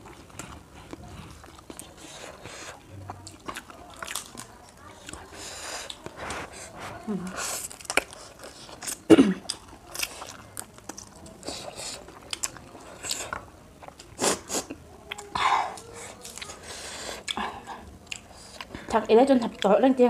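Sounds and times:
noodles slurped and chewed: 0:00.0 - 0:19.0
person coughing: 0:09.1 - 0:09.4.

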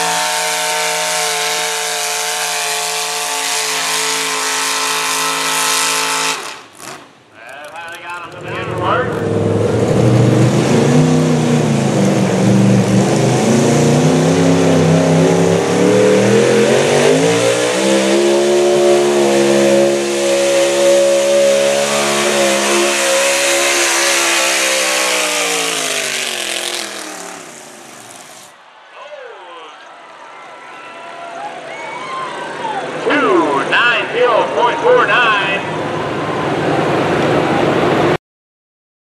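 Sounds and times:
truck engine revving hard: 0:00.0 - 0:07.2, 0:08.3 - 0:28.5.

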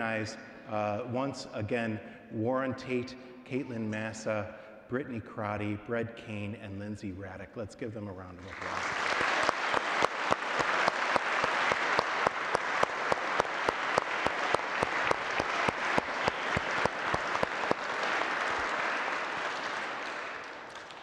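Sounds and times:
crowd applauding: 0:08.4 - 0:21.0
hands clapping sharply nearby: 0:08.4 - 0:21.0.

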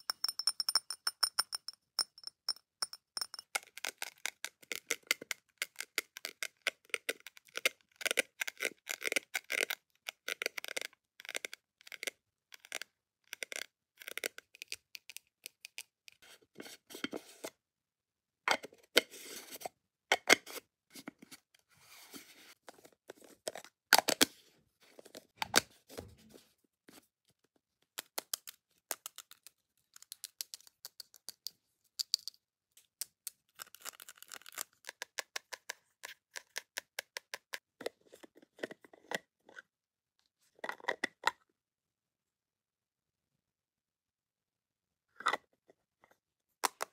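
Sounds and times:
fingernails tapping on jars: 0:00.0 - 0:03.5.

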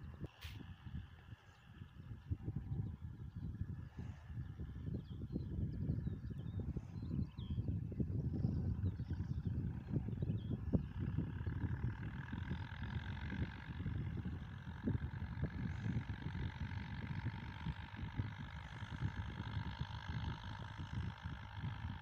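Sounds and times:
wind buffeting microphone: 0:00.0 - 0:22.0
distant tractor engine: 0:08.3 - 0:22.0.

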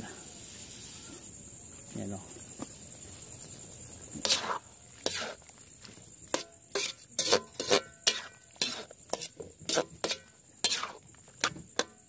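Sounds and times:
metal utensil scraping a wok: 0:04.2 - 0:05.4, 0:06.3 - 0:12.0.

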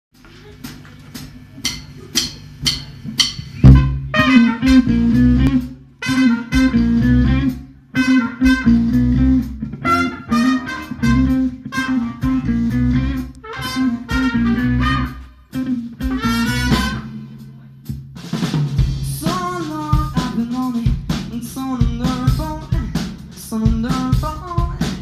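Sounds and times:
live band playing: 0:00.5 - 0:25.0
heavy bass line: 0:01.1 - 0:25.0
trumpet: 0:03.6 - 0:09.2, 0:09.8 - 0:17.5.

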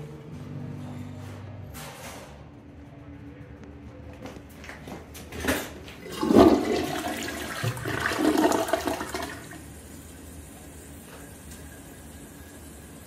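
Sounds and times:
toilet flush lever: 0:05.4 - 0:09.6
water rushing down toilet bowl: 0:06.0 - 0:09.8.

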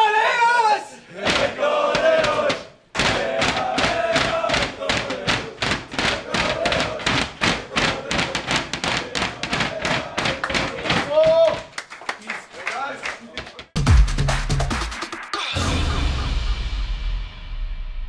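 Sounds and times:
men shouting: 0:00.0 - 0:11.7
hands drumming on panels: 0:01.3 - 0:11.7.

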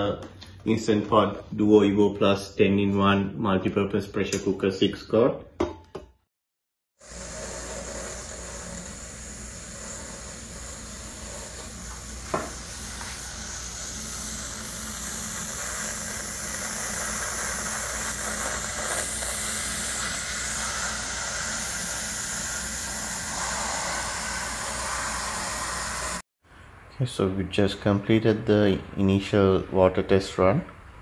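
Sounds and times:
pressure cooker hissing steam: 0:07.0 - 0:26.2.

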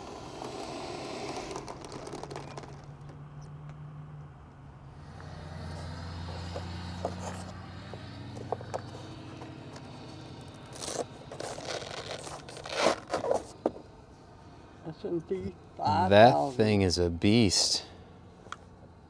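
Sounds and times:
rustling: 0:00.0 - 0:03.2, 0:08.3 - 0:13.6
plastic scraping and clicks: 0:01.3 - 0:03.8.

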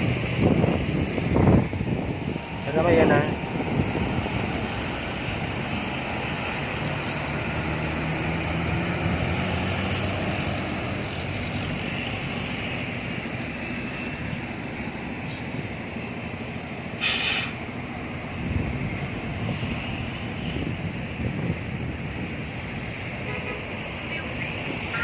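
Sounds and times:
vehicles driving past: 0:00.0 - 0:25.0
air brakes hissing: 0:15.2 - 0:15.6, 0:17.0 - 0:17.6.

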